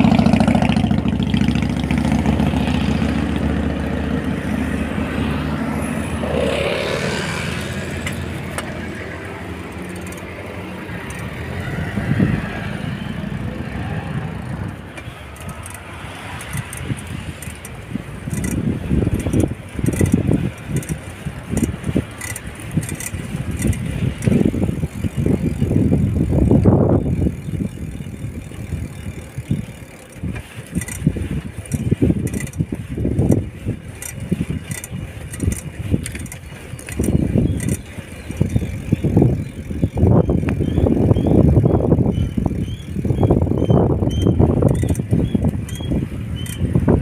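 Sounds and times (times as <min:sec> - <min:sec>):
road noise: 0:00.0 - 0:47.0
wind rumbling on microphone: 0:00.0 - 0:47.0
faint ticking and rattling: 0:07.0 - 0:11.4, 0:14.5 - 0:47.0.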